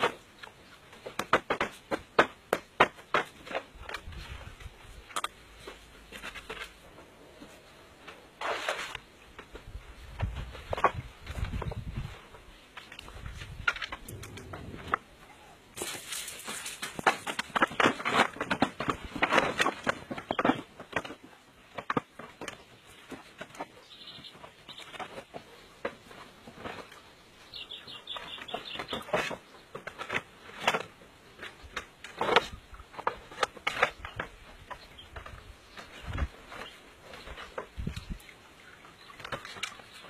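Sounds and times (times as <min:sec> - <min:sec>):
bamboo poles knocking: 0:00.0 - 0:04.2.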